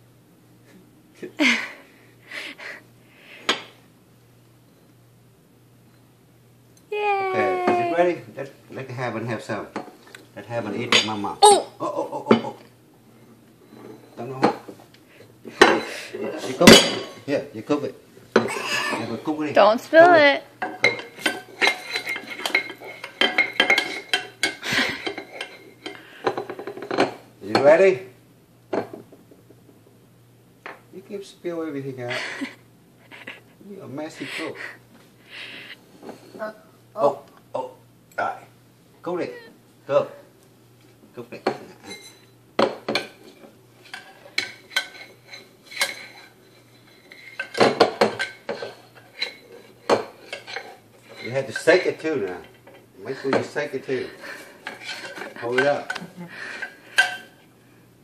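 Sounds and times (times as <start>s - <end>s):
metal spoon scraping saucepan: 20.6s - 27.0s, 48.2s - 52.0s, 54.6s - 55.9s.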